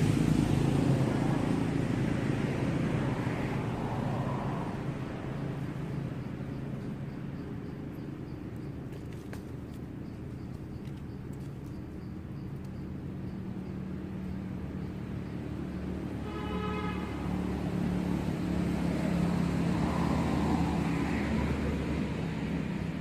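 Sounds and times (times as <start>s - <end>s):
vehicle engine droning: 0.0s - 23.0s.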